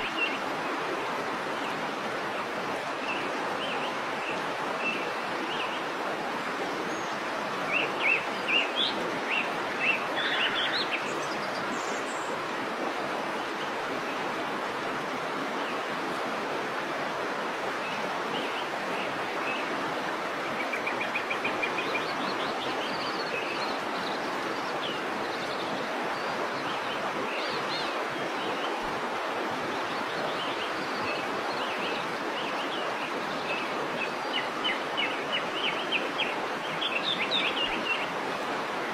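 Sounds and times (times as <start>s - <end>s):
waterfall rushing: 0.0s - 38.9s
birds chirping: 6.8s - 12.4s.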